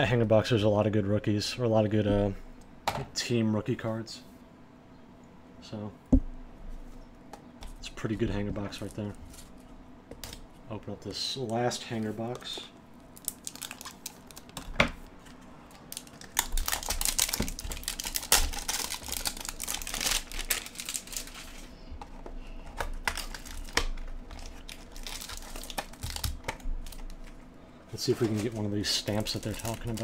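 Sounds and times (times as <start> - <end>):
plastic wrap crinkling and tearing: 13.2 - 14.6, 15.7 - 21.7, 22.6 - 27.4, 28.0 - 30.0.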